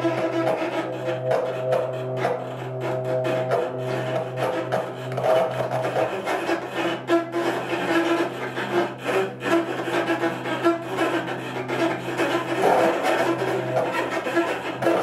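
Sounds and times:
pulsing mid-pitched tone: 0.0 - 6.2
grainy clicking noise texture: 0.0 - 10.2.

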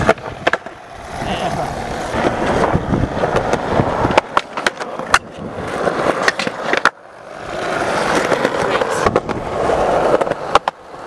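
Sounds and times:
skateboard wheels rolling on concrete: 0.0 - 11.0.

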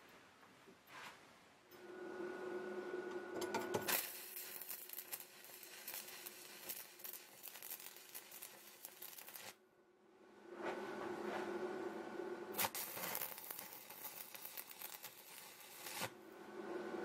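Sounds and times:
welding arc crackling: 3.5 - 9.6, 12.5 - 16.2.

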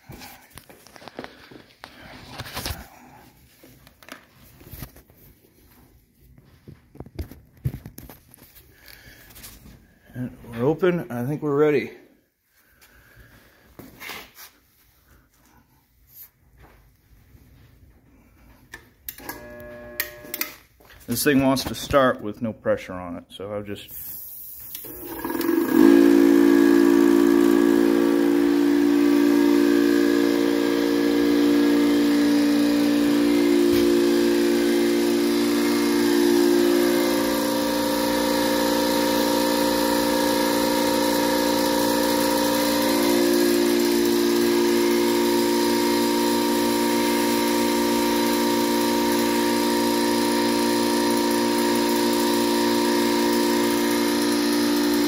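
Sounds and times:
air compressor humming: 0.0 - 5.8, 7.2 - 12.0, 18.2 - 22.0, 23.9 - 55.0.

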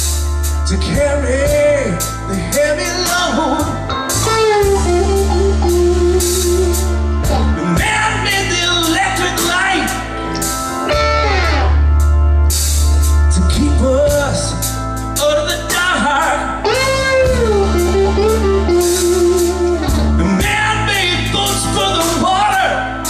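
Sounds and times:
bass and drums: 0.0 - 23.0
man singing: 0.6 - 5.0, 7.5 - 10.1, 13.3 - 17.4, 20.0 - 22.9
electric guitar lead lines: 3.1 - 8.7, 9.3 - 13.6, 16.0 - 22.0.

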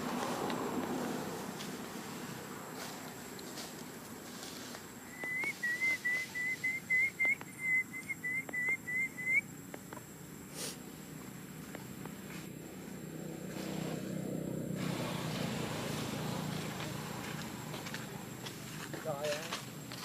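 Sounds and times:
short whistled notes: 5.1 - 9.4.

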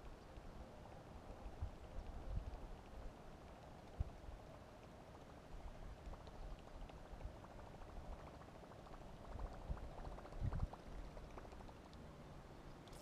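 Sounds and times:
small irregular clicks: 0.0 - 13.0.

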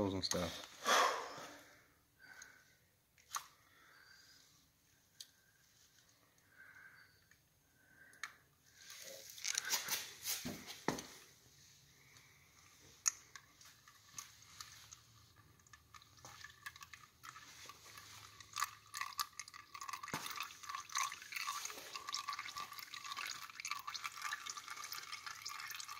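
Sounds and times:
oil trickling into a pan: 12.8 - 25.9.

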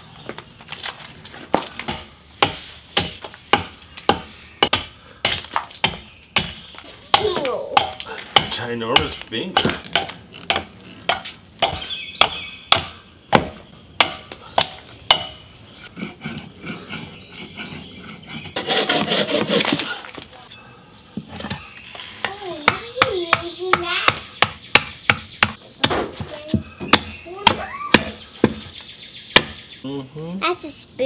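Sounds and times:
hatchet chopping log: 1.6 - 15.4, 22.6 - 28.7, 29.4 - 29.6
bow saw rasping through log: 15.8 - 19.9.

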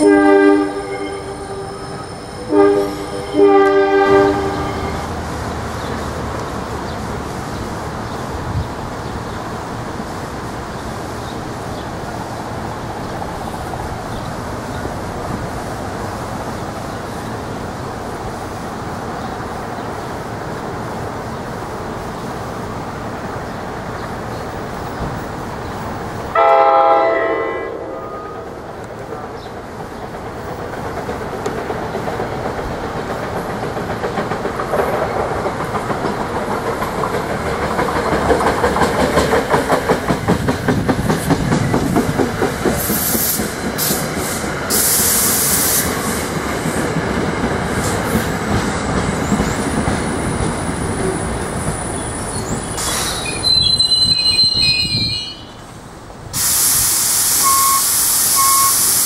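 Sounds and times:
train rumbling past: 0.0 - 59.0
loud hiss: 0.7 - 26.7, 39.0 - 47.0, 52.2 - 53.6, 55.3 - 59.0
wheels clacking over rail joints: 28.6 - 54.2.

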